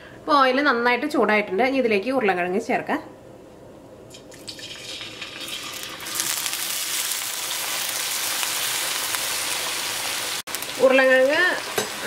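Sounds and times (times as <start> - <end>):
potatoes sizzling in hot oil: 4.4 - 12.0.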